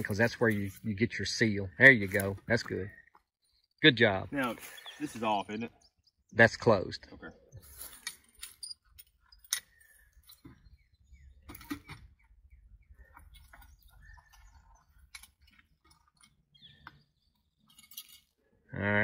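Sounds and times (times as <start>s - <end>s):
faint bird chirps: 2.6s - 6.4s, 8.6s - 18.5s
metal clinks of pipe fittings: 7.6s - 10.5s, 17.6s - 18.4s.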